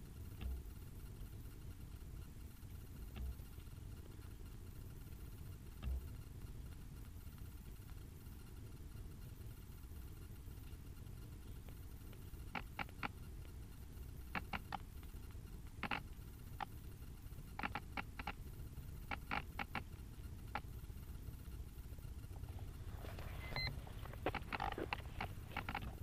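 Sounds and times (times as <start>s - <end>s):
small sharp clicks: 11.4s - 13.6s, 14.2s - 16.8s, 17.5s - 20.8s, 23.5s - 26.0s.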